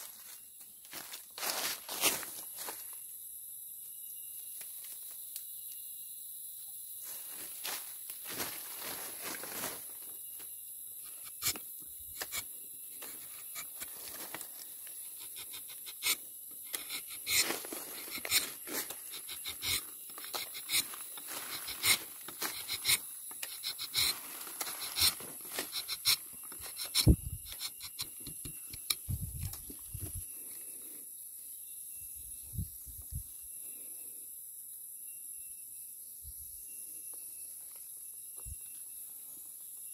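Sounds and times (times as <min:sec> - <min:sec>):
knife scraping tree bark: 0:11.1 - 0:13.9, 0:15.0 - 0:29.0.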